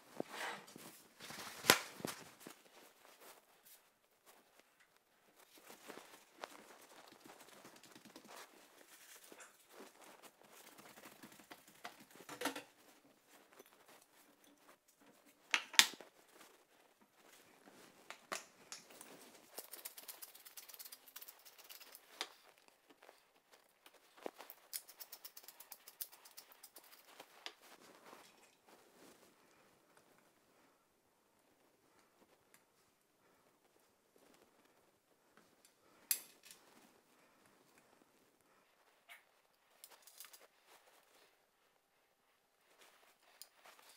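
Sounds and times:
pepper shaker ticking: 0:19.5 - 0:22.2, 0:24.4 - 0:27.2.

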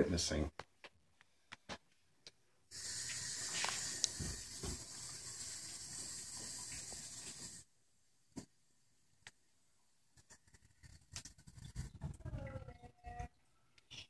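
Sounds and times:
faucet water running: 0:02.7 - 0:07.7.

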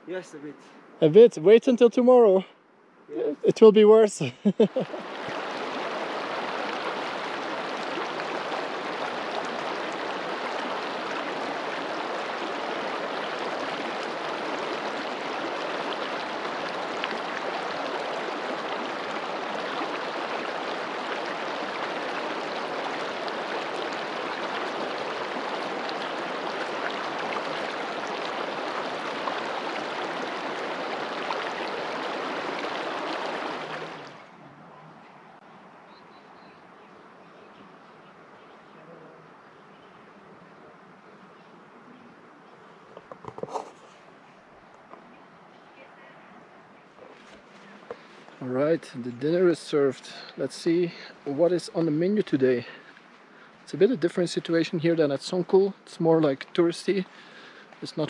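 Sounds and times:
river flowing over stones: 0:03.5 - 0:35.9, 0:46.3 - 0:58.0.

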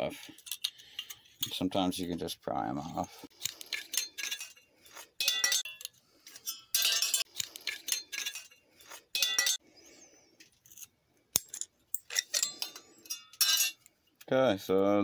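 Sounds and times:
metallic clinking and scraping: 0:00.1 - 0:01.9, 0:02.9 - 0:09.6, 0:10.4 - 0:14.3.

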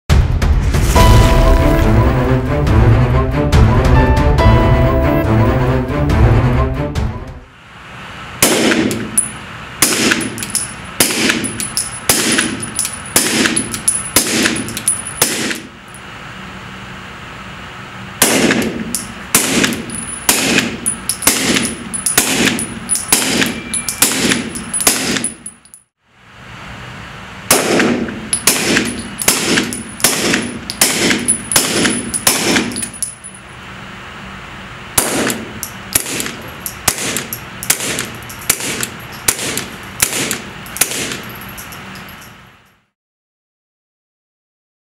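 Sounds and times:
suppressed pistol shots: 0:08.4 - 0:09.1, 0:09.8 - 0:10.4, 0:12.1 - 0:12.6, 0:18.2 - 0:25.3, 0:27.5 - 0:32.8, 0:35.0 - 0:35.4, 0:36.0 - 0:41.2.

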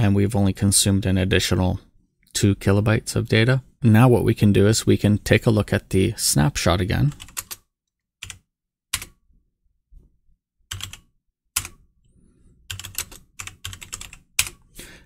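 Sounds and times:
typing on computer keyboard: 0:07.1 - 0:07.6, 0:08.2 - 0:08.4, 0:10.7 - 0:11.8, 0:12.7 - 0:14.6.

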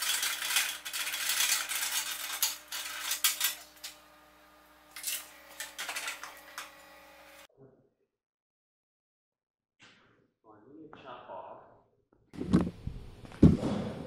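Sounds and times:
metal parts clinking: 0:00.0 - 0:03.9, 0:05.0 - 0:06.6.

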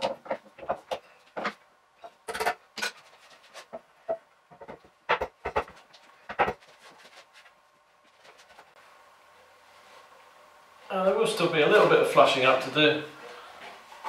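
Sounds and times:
wooden boards knocking: 0:03.7 - 0:06.7.

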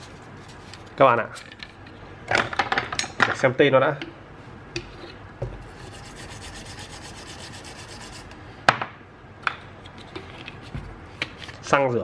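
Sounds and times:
small brush scrubbing circuit board: 0:05.7 - 0:08.4.

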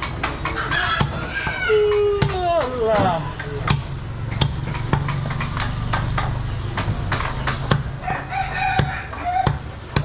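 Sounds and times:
cleaver chopping meat on wood: 0:00.0 - 0:01.6, 0:03.6 - 0:08.0, 0:08.6 - 0:10.0
rooster crowing: 0:08.0 - 0:09.6.

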